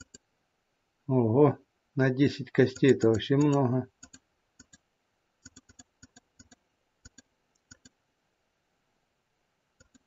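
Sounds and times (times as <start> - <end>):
computer mouse clicks: 0.0 - 0.3, 2.7 - 8.0, 9.8 - 10.0.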